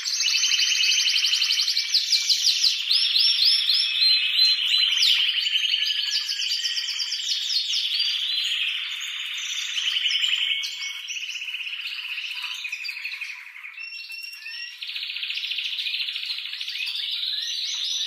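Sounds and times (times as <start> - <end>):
canary singing trills: 0.0 - 18.0.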